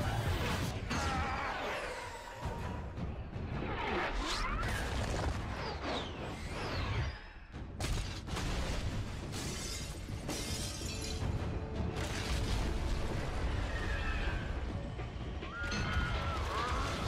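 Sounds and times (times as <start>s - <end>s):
music: 0.0s - 17.0s
glass shattering: 9.3s - 11.4s.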